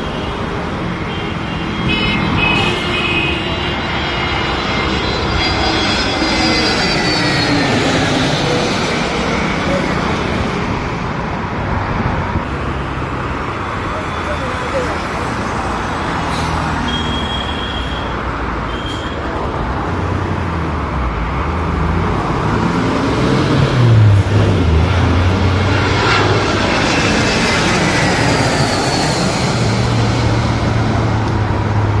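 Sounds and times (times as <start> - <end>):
jet airliner passing overhead: 0.0 - 32.0
jet engine whine falling: 3.7 - 10.8, 24.6 - 31.4.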